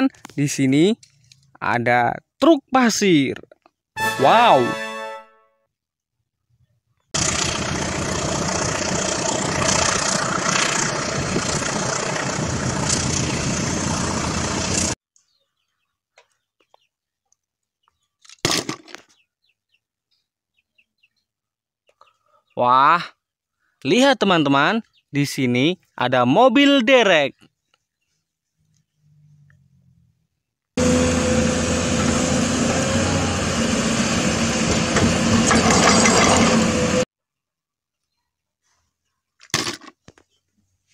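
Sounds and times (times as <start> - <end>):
heavy truck engine running: 7.2 - 15.0, 30.8 - 37.0
plastic toys clattering: 18.2 - 19.2, 39.4 - 40.2
dump truck engine running: 30.8 - 37.0.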